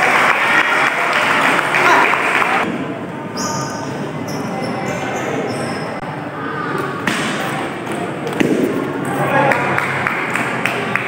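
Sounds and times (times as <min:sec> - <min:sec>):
table tennis ball hitting paddles: 0:07.0 - 0:08.9.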